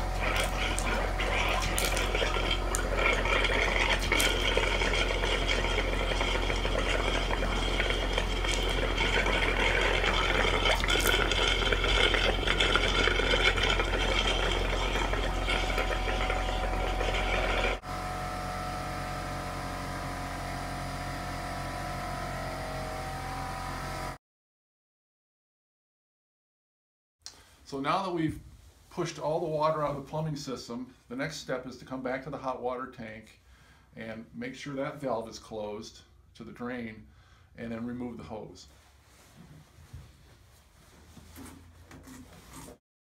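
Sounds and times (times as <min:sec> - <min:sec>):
water gushing and sputtering: 0:00.0 - 0:17.9
air compressor running: 0:00.0 - 0:24.2
mechanical hum: 0:00.0 - 0:24.2.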